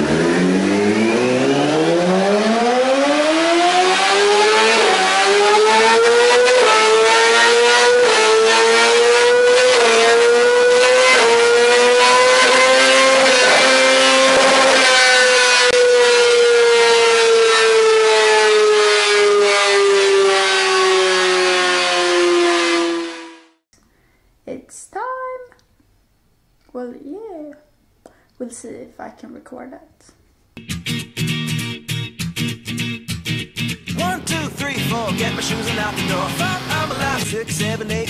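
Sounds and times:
motorcycle engine revving: 0:00.0 - 0:23.7, 0:33.6 - 0:38.0.

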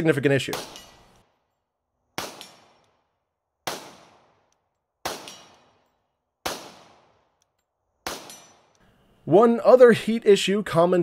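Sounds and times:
pistol shots: 0:00.5 - 0:01.3, 0:02.1 - 0:07.4, 0:08.0 - 0:08.8.

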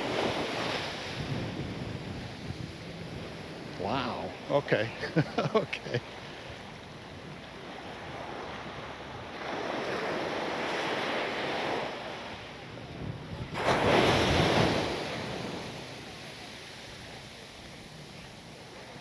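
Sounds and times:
surf breaking on beach: 0:00.0 - 0:19.0.

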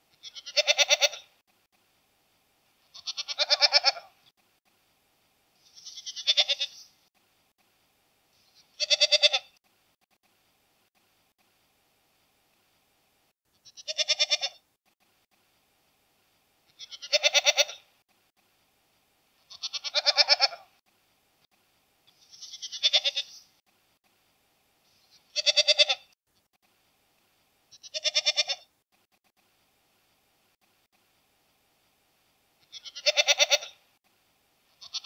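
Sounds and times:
goat bleating: 0:00.2 - 0:01.3, 0:02.9 - 0:04.1, 0:05.6 - 0:06.9, 0:08.5 - 0:09.6, 0:13.6 - 0:14.6, 0:16.7 - 0:17.8, 0:19.5 - 0:20.7, 0:22.1 - 0:23.5, 0:25.1 - 0:26.2, 0:27.7 - 0:28.7, 0:32.6 - 0:33.8, 0:34.8 - 0:35.0.

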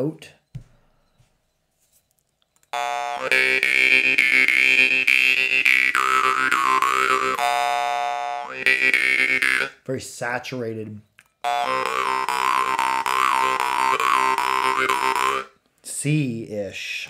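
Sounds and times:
jaw harp buzzing drone: 0:02.7 - 0:09.7, 0:11.4 - 0:15.5.

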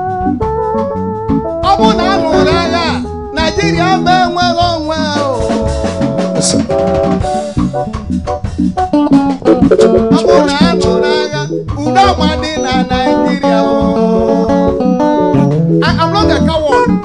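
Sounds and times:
live band music: 0:00.0 - 0:17.0
snare drum rhythm: 0:01.6 - 0:12.4.

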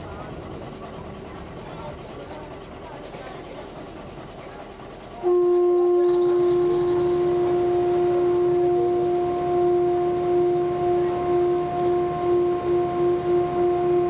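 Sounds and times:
railbus horn blast: 0:05.2 - 0:14.0.

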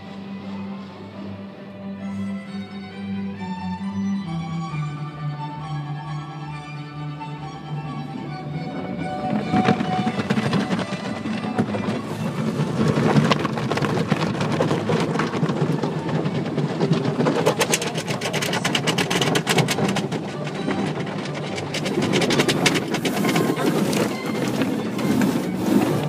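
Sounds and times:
car wash water jets and brushes: 0:09.1 - 0:26.0.

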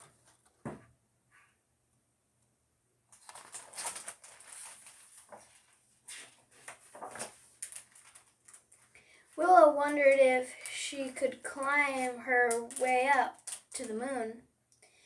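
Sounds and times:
book rustling and scraping: 0:03.1 - 0:08.9.

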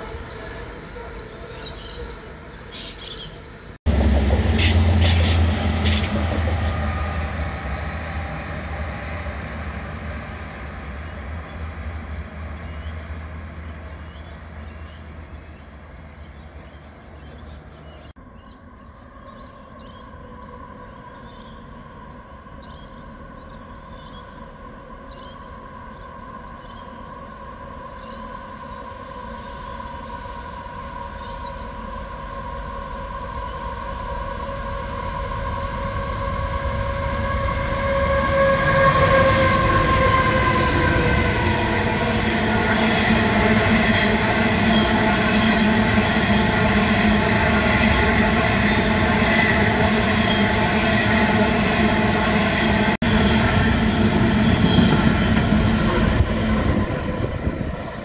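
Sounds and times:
birds chirping: 0:00.0 - 0:06.8, 0:33.4 - 0:36.4
approaching train hum and whine: 0:00.0 - 0:58.0
deep locomotive engine rumble: 0:00.0 - 0:58.0.

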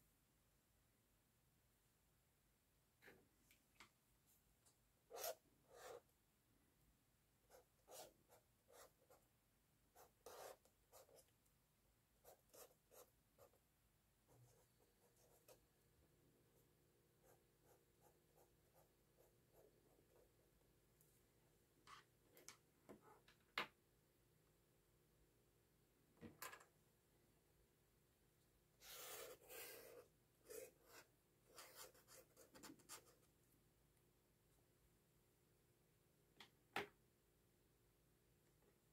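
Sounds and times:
marker drawing on paper: 0:05.1 - 0:06.1, 0:07.5 - 0:09.2, 0:10.0 - 0:11.3, 0:12.2 - 0:13.6, 0:28.8 - 0:33.2
felt-tip pen scratching on paper: 0:28.8 - 0:33.1.

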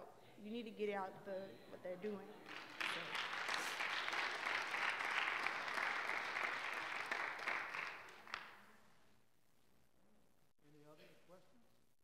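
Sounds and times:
congregation applauding: 0:02.4 - 0:08.8.

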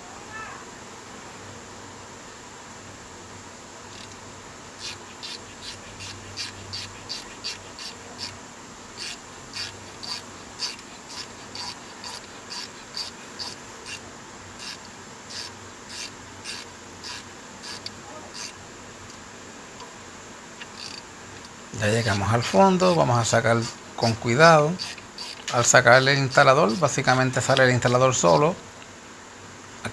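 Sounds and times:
threads squeaking while screwed: 0:03.9 - 0:04.2, 0:04.8 - 0:08.4, 0:09.0 - 0:14.0, 0:14.6 - 0:19.2, 0:20.6 - 0:28.5.

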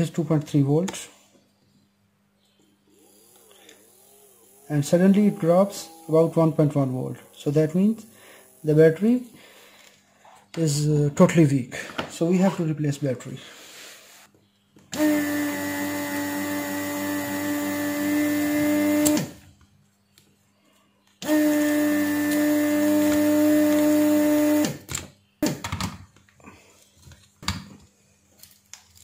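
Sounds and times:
desoldering pump humming: 0:02.7 - 0:10.0, 0:14.8 - 0:20.3, 0:21.1 - 0:25.0.

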